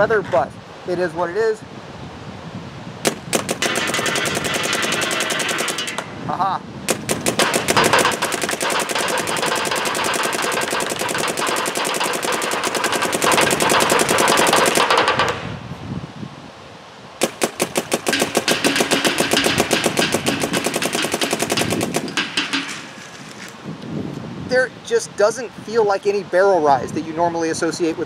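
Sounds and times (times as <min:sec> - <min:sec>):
paintball marker firing rapidly: 0:03.0 - 0:06.1, 0:06.9 - 0:15.5, 0:17.2 - 0:23.0.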